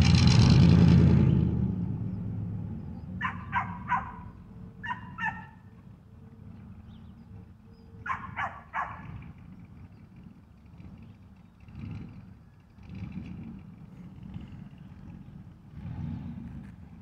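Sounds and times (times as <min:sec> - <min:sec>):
vehicle engine: 0:00.0 - 0:17.0
dog barking: 0:03.2 - 0:05.6, 0:08.0 - 0:09.2.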